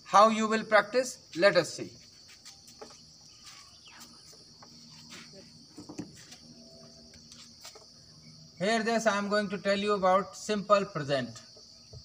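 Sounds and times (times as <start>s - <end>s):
insect chirring: 0.0s - 12.0s.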